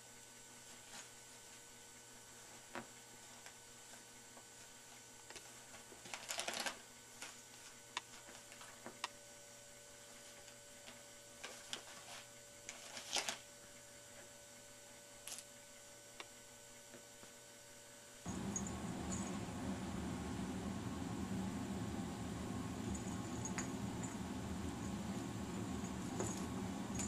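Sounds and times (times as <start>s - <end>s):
low steady hum: 0.0s - 27.0s
wrapping paper crinkling: 5.3s - 8.9s, 10.3s - 13.5s
loud rumbling noise: 18.3s - 27.0s.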